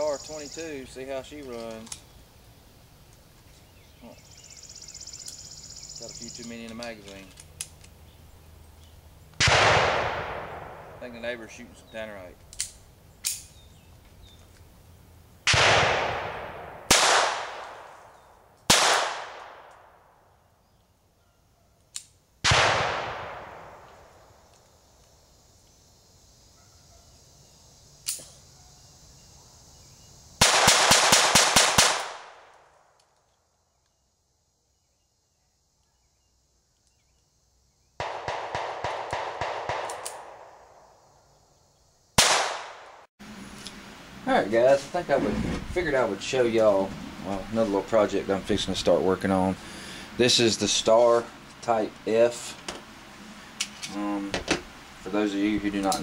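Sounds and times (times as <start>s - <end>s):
rapid pistol shots: 9.4s - 11.0s, 15.5s - 17.9s, 18.7s - 19.7s, 22.4s - 23.8s, 30.4s - 32.5s, 38.0s - 40.7s, 42.2s - 43.0s
pistol shots echoing: 9.4s - 11.2s, 15.5s - 18.0s, 18.7s - 20.0s, 22.4s - 24.0s, 30.4s - 32.5s, 38.0s - 40.8s, 42.2s - 43.0s.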